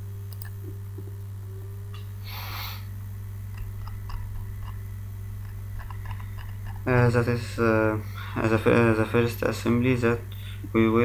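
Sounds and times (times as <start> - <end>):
low electrical hum: 0.0 - 11.0
short hiss: 2.2 - 2.9.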